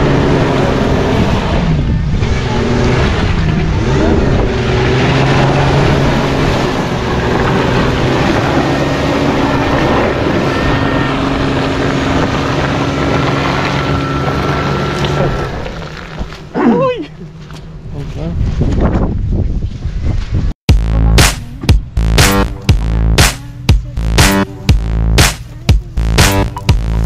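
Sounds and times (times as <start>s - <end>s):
suv engine revving in mud: 0.0s - 16.5s.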